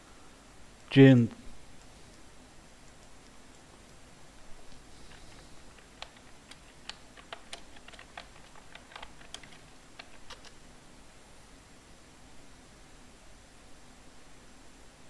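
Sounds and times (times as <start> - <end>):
keyboard key clicks: 5.1 - 10.6.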